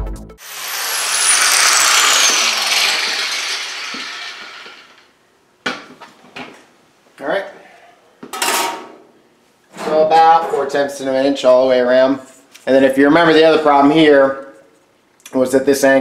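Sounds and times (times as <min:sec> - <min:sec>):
electric grinder spinning down: 0:00.4 - 0:05.2.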